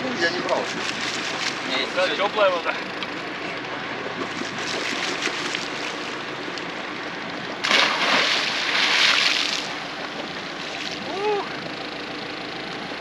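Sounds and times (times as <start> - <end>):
steady water wash: 0.0 - 11.8
seawater splashing and sloshing: 0.2 - 2.4, 3.7 - 6.3, 7.6 - 11.2
loud rush of splashing: 7.6 - 9.8.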